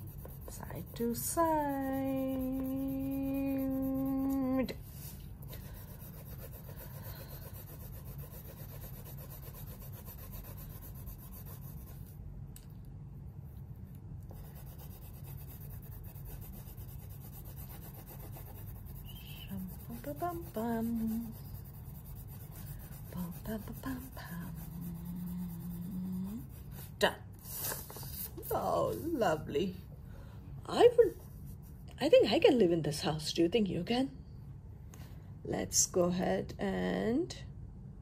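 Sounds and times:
pencil scratching on paper: 0.0s - 12.1s, 14.3s - 29.2s.

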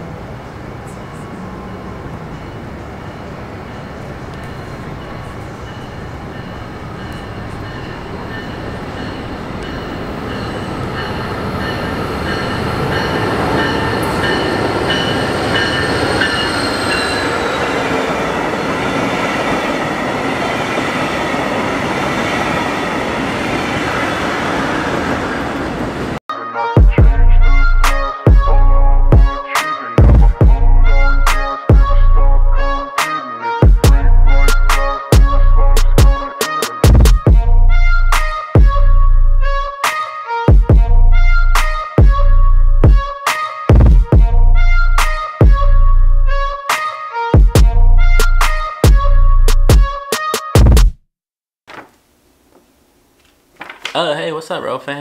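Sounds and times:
passenger train passing: 0.0s - 26.2s
crossing bell ringing: 0.9s - 21.9s.

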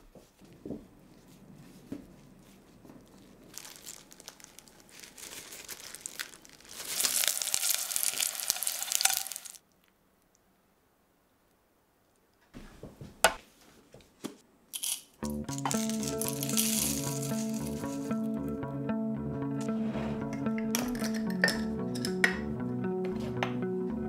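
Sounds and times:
dough crust cracking and crunching: 2.4s - 10.0s, 15.2s - 18.2s.

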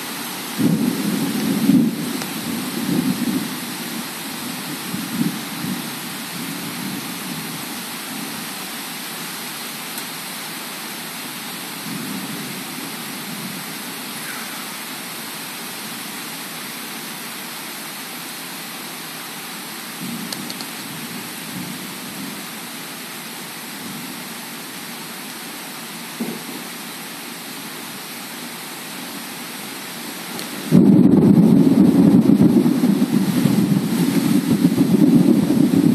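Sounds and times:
heavy rain: 0.0s - 35.9s
thunder rumbles: 0.6s - 7.5s, 30.5s - 35.9s.

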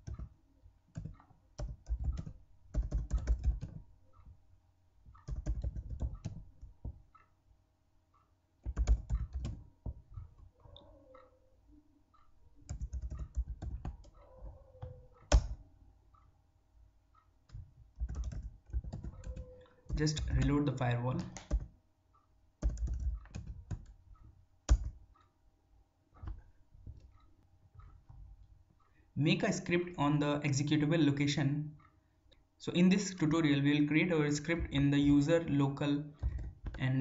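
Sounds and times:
keyboard typing: 0.0s - 4.4s, 5.1s - 7.3s, 8.6s - 11.4s, 12.6s - 15.6s, 17.5s - 21.8s, 22.6s - 25.0s, 34.2s - 37.0s.

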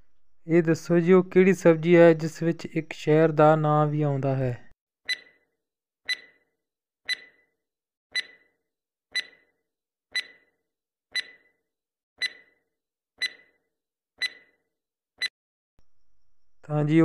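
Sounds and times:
bright ringing timer ticks: 5.1s - 5.3s, 6.1s - 6.4s, 7.1s - 7.4s, 8.2s - 8.4s, 9.2s - 9.5s, 10.2s - 10.5s, 11.2s - 11.5s, 12.2s - 12.6s, 13.2s - 13.6s, 14.2s - 14.6s.

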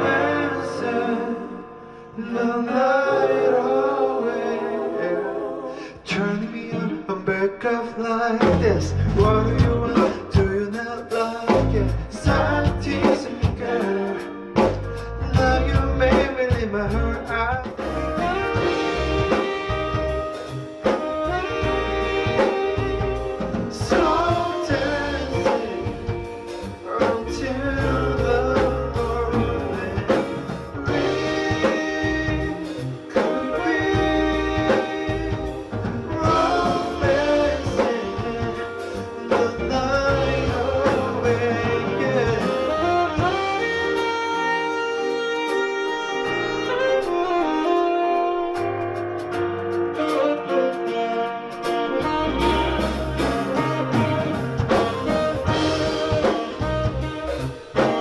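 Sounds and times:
live band playing: 0.0s - 2.1s, 2.7s - 58.0s
man singing into a microphone: 0.0s - 3.7s, 5.8s - 18.7s, 23.7s - 44.2s, 55.1s - 58.0s.

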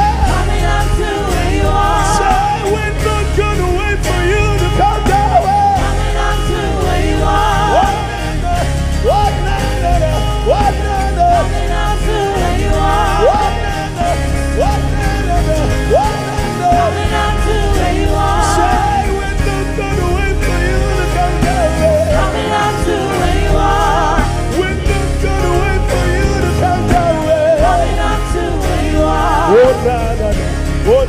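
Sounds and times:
gospel band playing: 0.0s - 31.0s.

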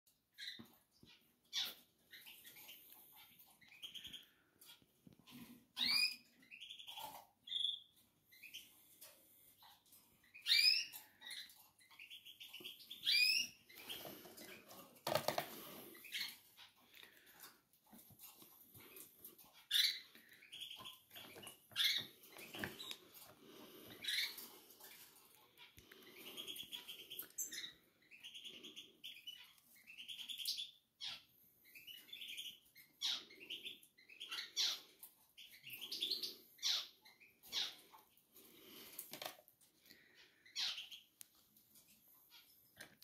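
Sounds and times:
chicks cheeping: 0.3s - 9.0s, 9.6s - 14.7s, 18.8s - 38.0s, 39.9s - 41.2s.

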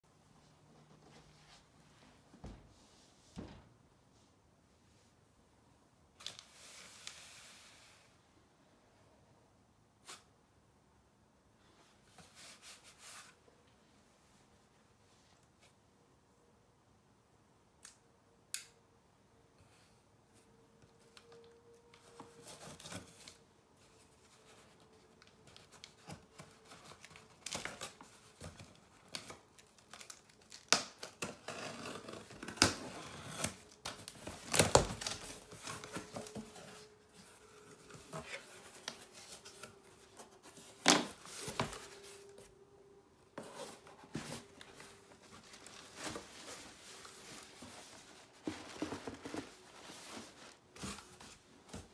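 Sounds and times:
cardboard and paper rustling: 21.0s - 42.6s, 43.3s - 51.9s
cardboard tearing: 29.1s - 36.7s.

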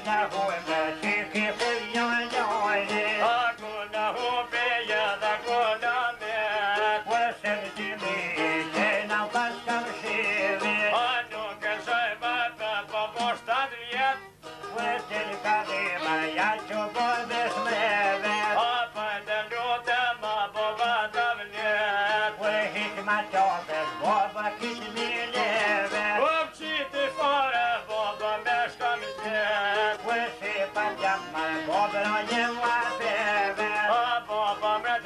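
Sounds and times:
plucked long-necked lutes: 0.0s - 11.0s, 14.5s - 18.7s, 22.0s - 34.8s
violin melody: 22.9s - 26.1s, 28.7s - 33.8s.

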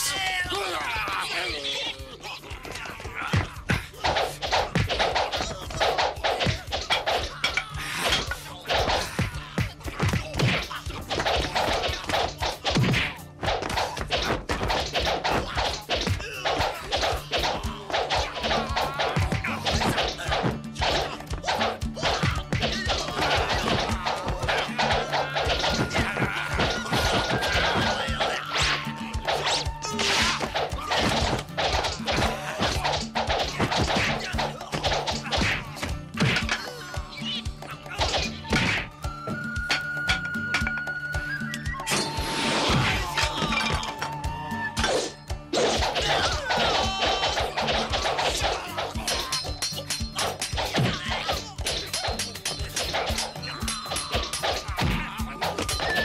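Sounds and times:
swishes of swung weapons: 3.6s - 36.8s, 44.9s - 56.0s
punch and staff whacks: 4.1s - 7.2s, 10.0s - 27.9s, 30.0s - 36.5s.

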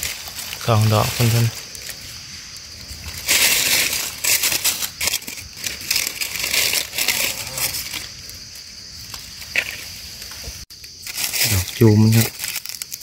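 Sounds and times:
dry leaves crunching: 0.0s - 13.0s.

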